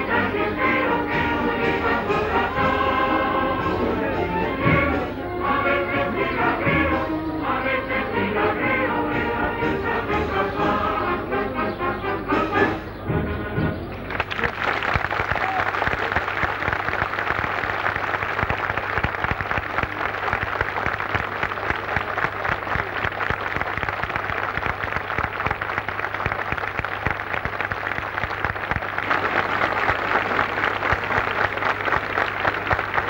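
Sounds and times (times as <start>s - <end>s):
crowd applauding: 14.0s - 33.0s.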